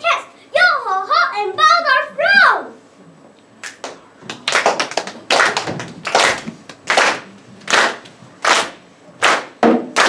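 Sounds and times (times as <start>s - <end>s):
group of hands clapping: 3.6s - 10.0s.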